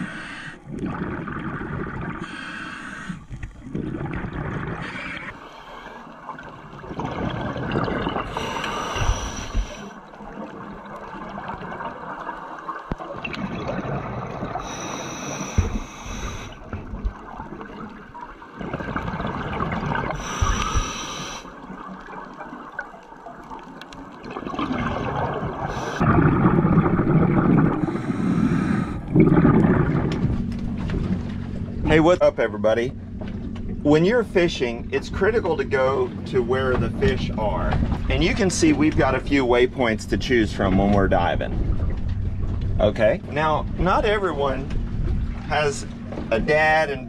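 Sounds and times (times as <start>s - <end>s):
bubbling exhalations underwater: 0.6s - 2.4s, 3.4s - 12.4s, 13.0s - 14.9s, 15.6s - 21.0s, 24.2s - 30.5s
regulator hissing inhalations: 2.2s - 3.3s, 8.4s - 9.9s, 14.6s - 16.6s, 20.2s - 21.5s.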